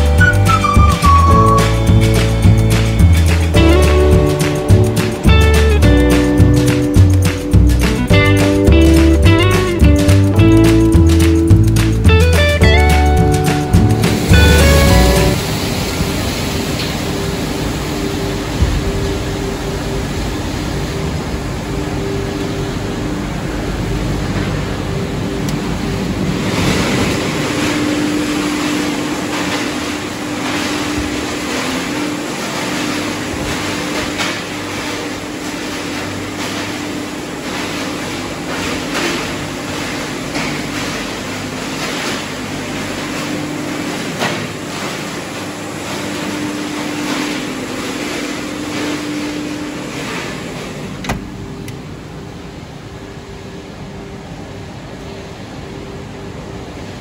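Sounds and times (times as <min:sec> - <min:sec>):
machinery humming: 0:00.0 - 0:57.0
machine clicks and rattles: 0:01.6 - 0:15.2.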